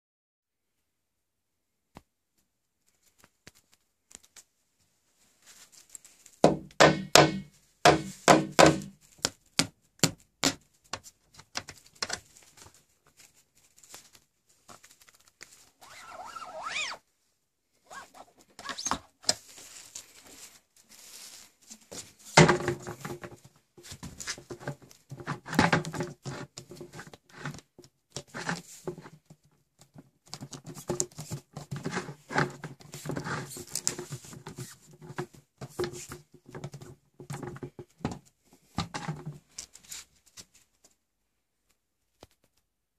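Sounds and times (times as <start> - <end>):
plastic cones knocking together: 6.4 - 12.2, 22.4 - 29.1
plastic rubbing and scraping: 10.4 - 17.0, 17.8 - 40.6.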